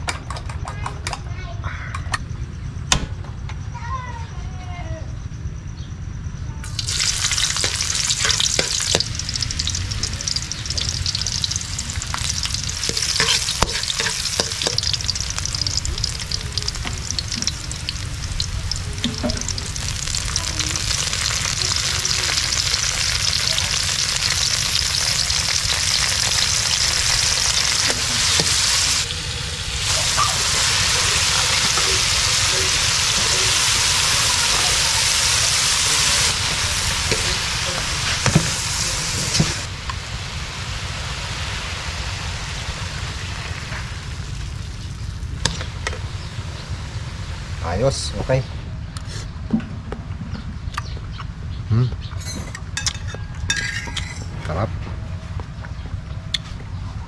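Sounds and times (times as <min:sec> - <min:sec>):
hot oil sizzling in a wok: 0:06.6 - 0:48.4
metal ladle scraping a pan: 0:07.1 - 0:16.2, 0:52.2 - 0:54.3.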